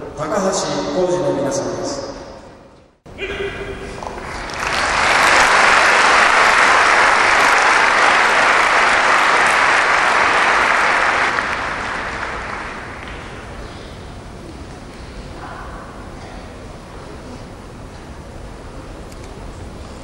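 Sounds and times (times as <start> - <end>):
large audience applauding: 4.0 - 13.6.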